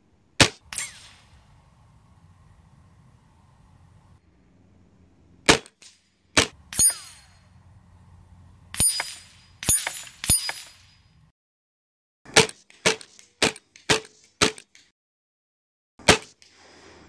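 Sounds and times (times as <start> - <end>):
air rifle shots: 0.4 - 1.6, 5.4 - 7.4, 8.7 - 10.8
pellets ringing steel targets: 6.4 - 7.6, 8.7 - 11.3.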